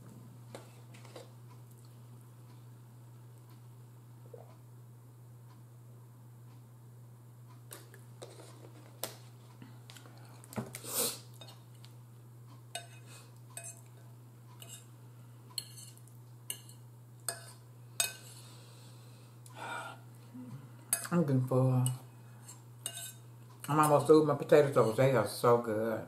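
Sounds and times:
steady low hum: 0.0 - 26.0
fork clinking against a bowl: 12.7 - 14.0, 14.6 - 14.9, 15.6 - 18.4, 20.9 - 21.1, 21.8 - 24.2.

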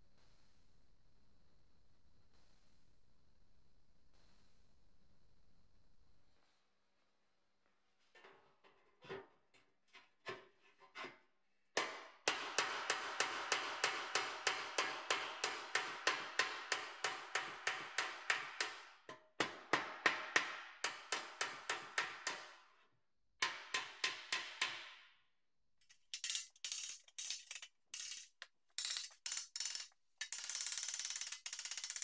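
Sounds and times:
hammer tapping sheet steel: 11.8 - 22.8, 23.4 - 25.0, 25.8 - 32.0.

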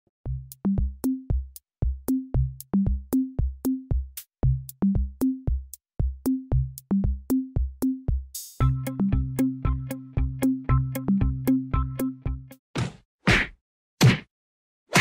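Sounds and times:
electronic drum-machine beat: 0.3 - 12.5
sustained bass and keyboard tones: 8.6 - 12.6.

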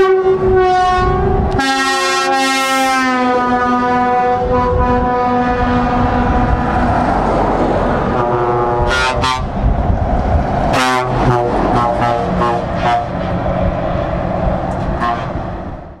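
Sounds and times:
truck air horn blasts: 0.0 - 6.7, 8.1 - 9.6, 10.7 - 13.3, 14.9 - 15.5
truck engine and tyre rumble: 0.0 - 16.0.

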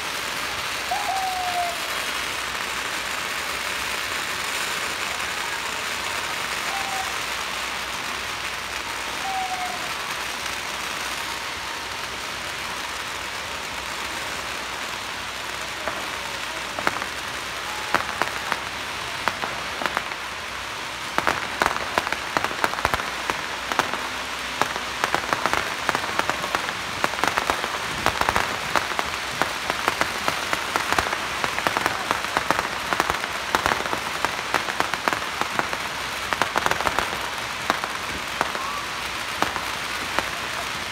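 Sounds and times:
firecrackers crackling: 0.0 - 40.9
loud firecracker bangs: 21.0 - 40.9.

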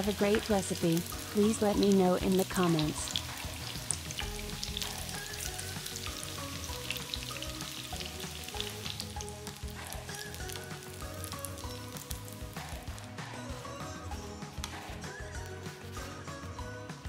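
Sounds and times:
dough frying in oil: 0.0 - 13.1
crackles of frying oil: 0.0 - 17.0.

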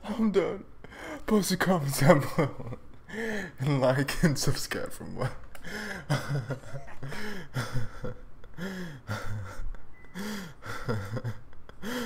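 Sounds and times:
man wheezing laughter: 5.8 - 12.0.

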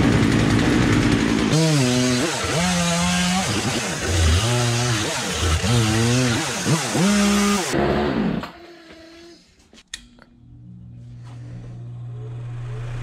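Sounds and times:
chainsaw cutting wood: 0.0 - 9.2.

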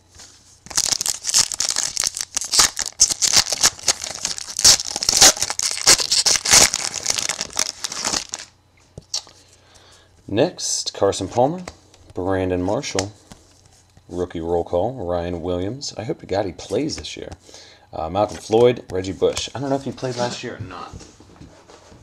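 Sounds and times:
wrapper tearing and crinkling: 0.7 - 8.5.

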